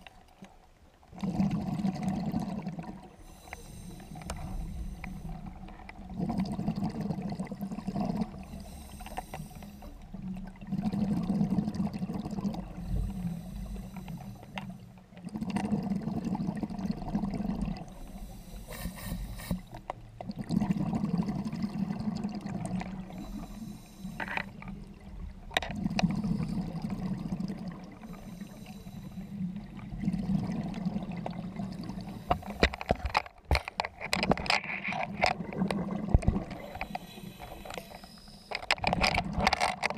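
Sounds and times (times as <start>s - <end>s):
bubbling: 1.1s - 39.9s
diver breathing through regulator: 3.1s - 5.8s, 7.8s - 10.2s, 12.6s - 15.0s, 17.8s - 19.8s, 22.9s - 24.8s, 28.0s - 30.3s, 31.5s - 33.1s, 36.4s - 38.8s.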